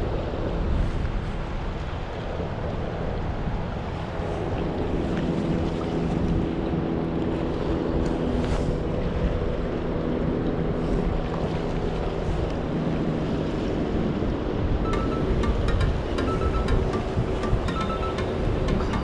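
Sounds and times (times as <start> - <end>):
waves washing: 0.0 - 19.0
wind buffeting microphone: 0.0 - 19.0
music: 14.9 - 19.0.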